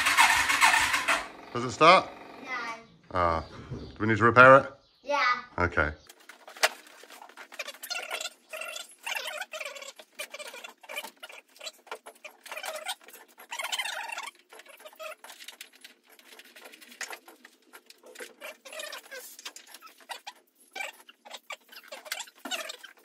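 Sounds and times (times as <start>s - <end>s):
scraping rustle: 6.1s - 23.0s.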